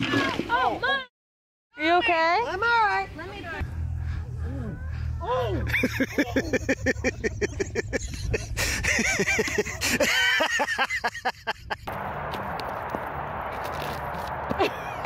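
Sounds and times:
person laughing: 5.4s - 11.9s, 14.5s - 15.0s.

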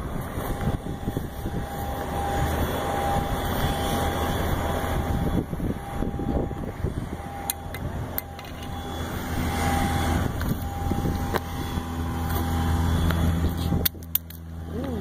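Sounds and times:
aircraft engine drone: 0.0s - 15.0s.

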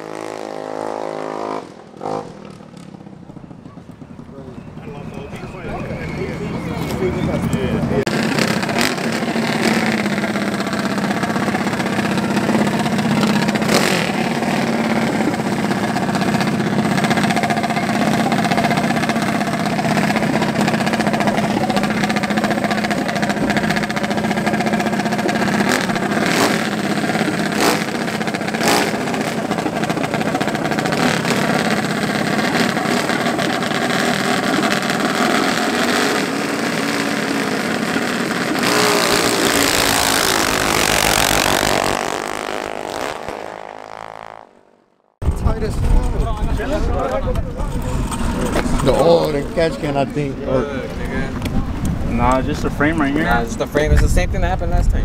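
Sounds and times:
small engines idling: 1.8s - 44.6s.

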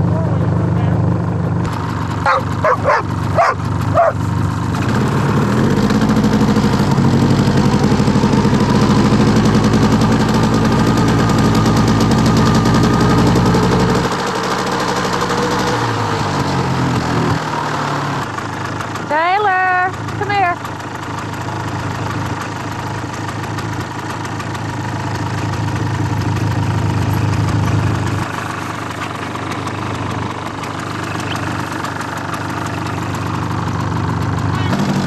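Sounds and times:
engine running: 0.0s - 35.0s
dog barking: 2.2s - 4.2s.

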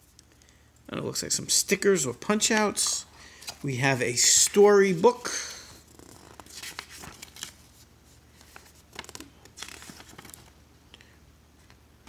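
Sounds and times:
book pages flipping: 5.8s - 10.6s.

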